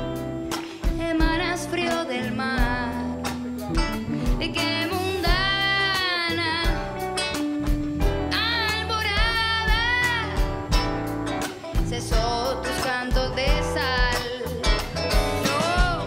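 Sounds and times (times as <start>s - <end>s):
bass notes: 0.0s - 16.0s
electric guitar: 0.0s - 16.0s
woman singing: 0.6s - 3.5s, 4.3s - 7.3s, 8.3s - 10.8s, 11.6s - 16.0s
drum beat: 9.1s - 16.0s.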